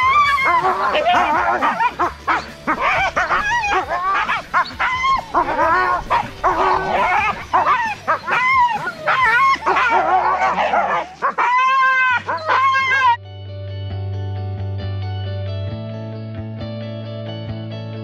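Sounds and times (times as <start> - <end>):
dogs howling: 0.0 - 13.2
dogs whining and yipping: 0.0 - 13.2.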